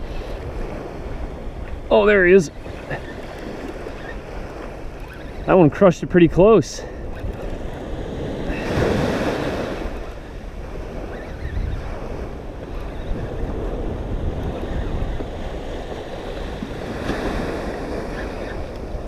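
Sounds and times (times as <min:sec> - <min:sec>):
surf waves washing on sand: 0:00.0 - 0:19.0
wind buffeting microphone: 0:00.0 - 0:19.0.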